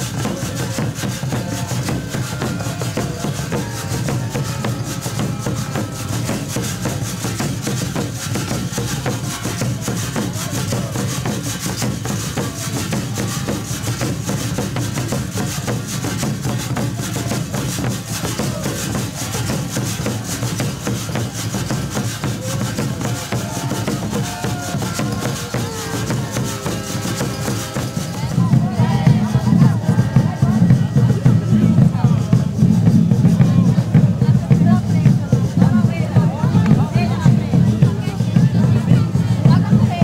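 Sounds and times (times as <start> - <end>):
hand percussion scraping and rattling: 0.0 - 40.0
stringed instruments: 0.0 - 40.0
accordion: 24.3 - 32.6.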